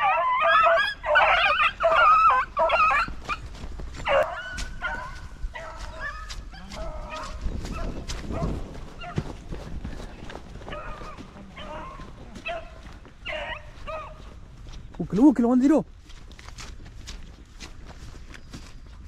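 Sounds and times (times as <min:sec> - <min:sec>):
dogs yelping and baying: 0:00.0 - 0:09.4, 0:10.6 - 0:14.4.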